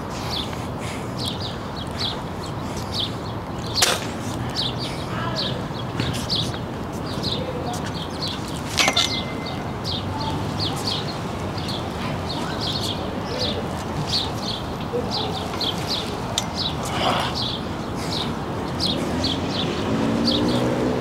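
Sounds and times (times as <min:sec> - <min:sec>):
small birds chirping: 0:00.1 - 0:21.0
hands clanking on steel bar: 0:08.7 - 0:10.0.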